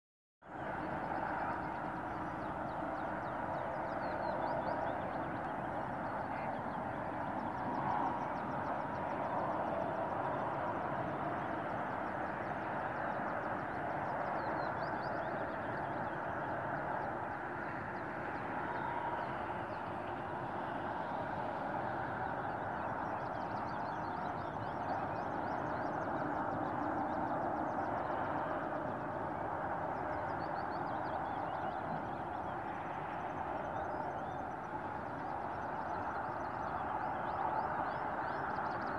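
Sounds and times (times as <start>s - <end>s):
rushing background noise: 0.5s - 38.9s.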